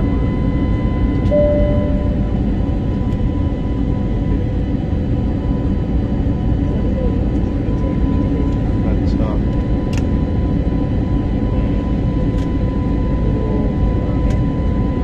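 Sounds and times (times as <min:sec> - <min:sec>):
jet engine roar in cabin: 0:00.0 - 0:15.0
thin steady whines: 0:00.0 - 0:15.0
short pure tone: 0:01.3 - 0:03.0.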